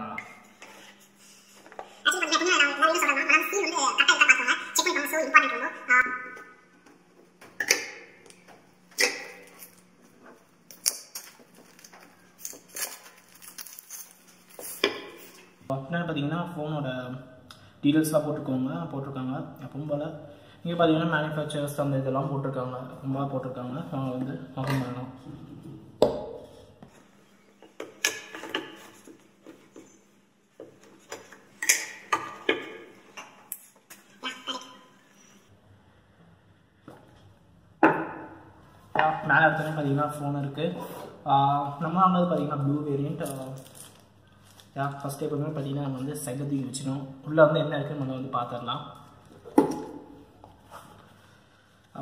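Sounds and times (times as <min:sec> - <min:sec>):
plastic shrink wrap crackling: 0:10.7 - 0:14.8.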